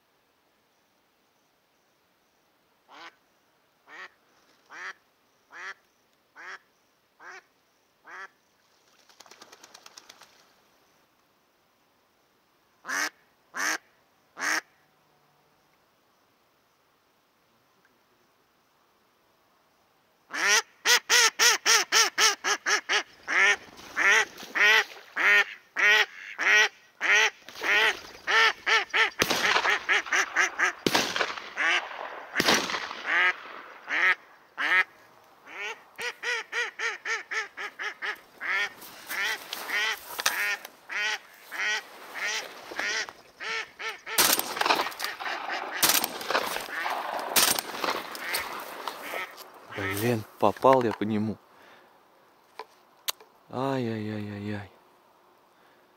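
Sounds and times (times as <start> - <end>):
duck quacking: 3.9 - 5.8, 12.8 - 13.8, 20.3 - 30.8, 31.5 - 32.4, 33.0 - 50.2.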